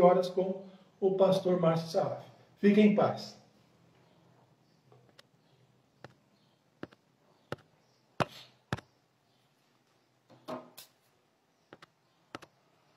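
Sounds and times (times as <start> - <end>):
hands tapping on tabletop: 6.8 - 8.8.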